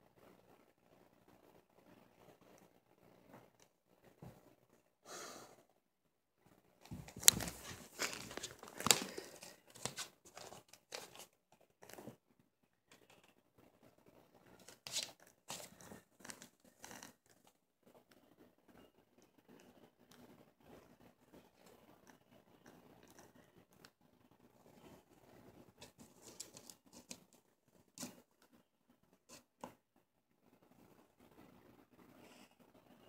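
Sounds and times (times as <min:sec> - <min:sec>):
cat claws scratching on rug: 0:06.8 - 0:12.2, 0:14.5 - 0:17.5, 0:25.8 - 0:28.5.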